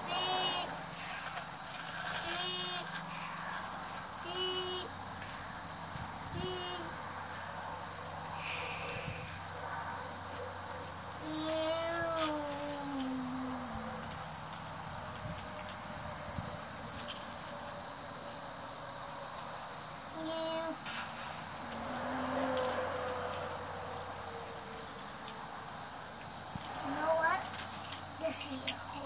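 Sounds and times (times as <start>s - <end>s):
child humming: 0.0s - 0.8s, 2.2s - 3.0s, 4.2s - 5.0s, 6.3s - 7.0s, 11.2s - 14.3s, 20.2s - 20.8s
insects chirping: 0.0s - 29.0s.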